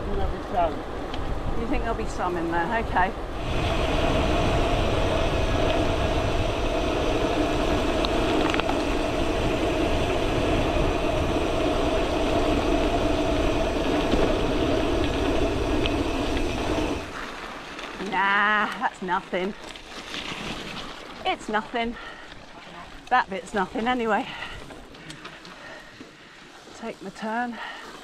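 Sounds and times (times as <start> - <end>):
wind noise on camera: 0.1 - 17.2
steady hum: 1.2 - 19.6, 21.2 - 27.8.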